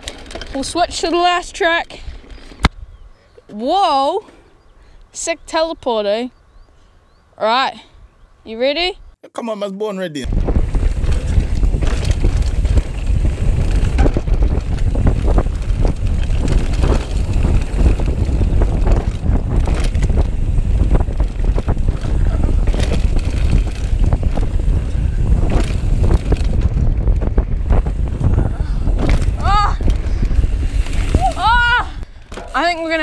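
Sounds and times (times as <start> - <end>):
bike clattering over bumps: 0.0 - 2.7, 10.3 - 33.0
wind buffeting microphone: 0.0 - 7.2, 10.2 - 33.0
tyres on dirt trail: 0.0 - 8.8, 10.3 - 33.0.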